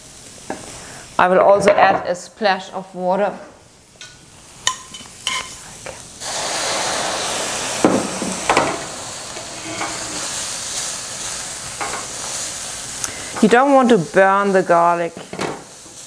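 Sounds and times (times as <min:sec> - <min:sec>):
water sizzling in hot pan: 0:00.0 - 0:16.0.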